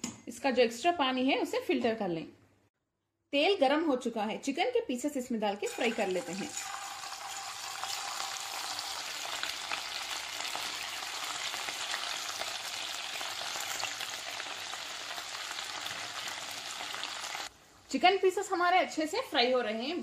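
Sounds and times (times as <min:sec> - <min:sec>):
chicken deep-frying in hot oil: 0:05.6 - 0:17.6.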